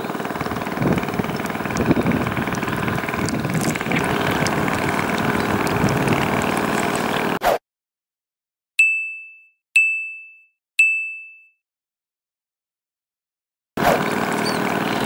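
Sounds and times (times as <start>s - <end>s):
wind and water noise: 0.0s - 7.4s
bell-like electronic dings: 8.8s - 11.6s.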